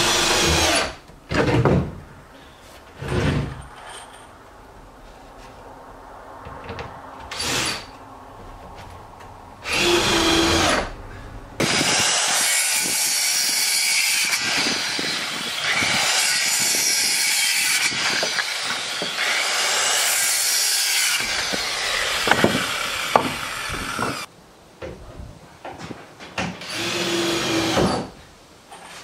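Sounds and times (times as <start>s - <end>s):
circular saw cutting plywood: 11.6s - 24.3s
small power tool whirring: 11.6s - 24.3s, 26.6s - 28.0s
knocks: 22.2s - 24.2s.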